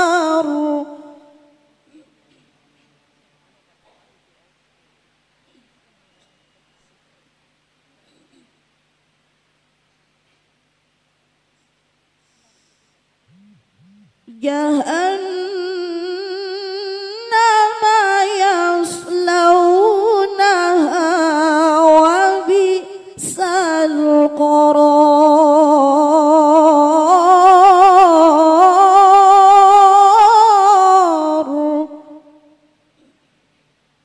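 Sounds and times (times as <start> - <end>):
woman chanting melodically: 0.0 - 1.8, 13.3 - 32.6.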